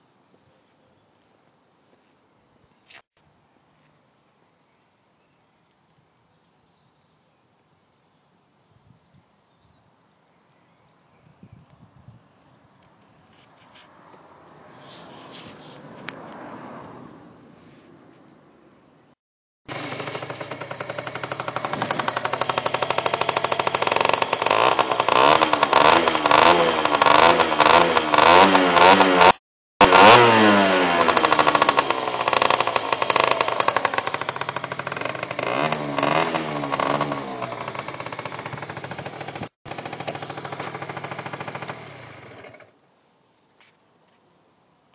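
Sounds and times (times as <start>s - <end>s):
motor scooter engine revving: 19.7s - 42.7s.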